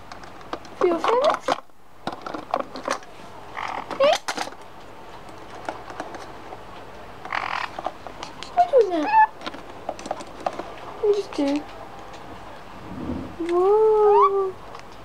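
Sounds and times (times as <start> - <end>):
small clicks and rustles: 0.0 - 12.4
parrot harsh squawks: 7.3 - 7.7, 9.0 - 9.3.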